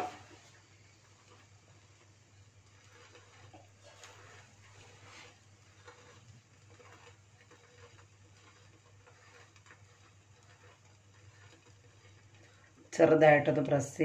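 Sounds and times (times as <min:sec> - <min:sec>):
food frying crackle: 0:00.0 - 0:14.0.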